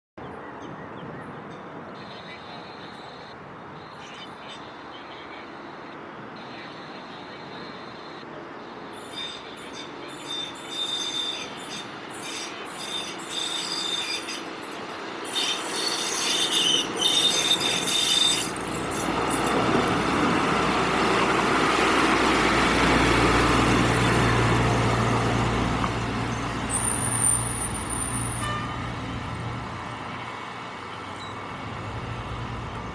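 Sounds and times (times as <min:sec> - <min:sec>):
high-pitched wheel squeal: 0:09.0 - 0:14.5, 0:15.3 - 0:19.4, 0:26.7 - 0:28.7
steel wheels rumbling on rail: 0:09.1 - 0:30.6
truck engine hum: 0:18.4 - 0:32.9.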